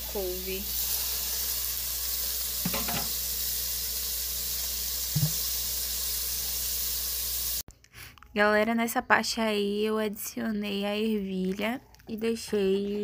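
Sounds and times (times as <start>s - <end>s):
food sizzling in hot oil: 0.0s - 7.6s.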